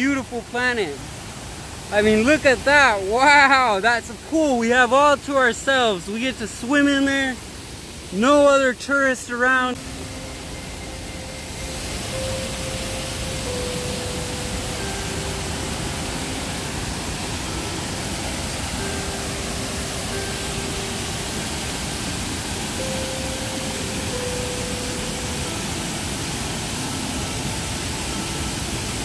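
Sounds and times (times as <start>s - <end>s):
slow melody of held notes: 0.0s - 29.0s
waterfall rushing: 0.0s - 29.0s.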